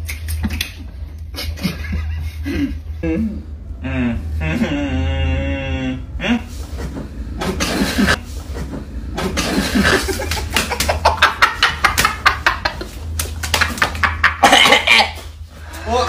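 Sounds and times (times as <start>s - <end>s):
men stifling laughter: 1.3s - 5.5s, 9.3s - 16.0s.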